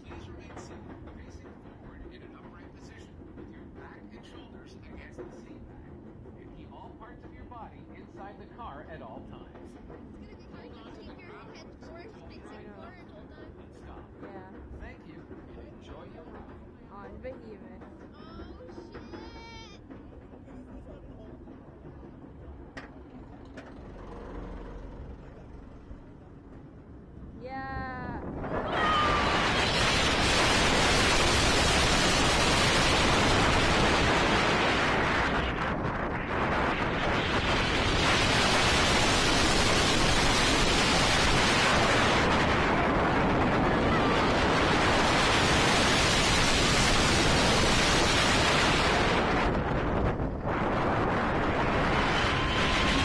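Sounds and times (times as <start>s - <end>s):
roller coaster rumbling on track: 0.0s - 53.0s
wind blasting microphone: 27.2s - 53.0s
rush of air: 28.0s - 53.0s.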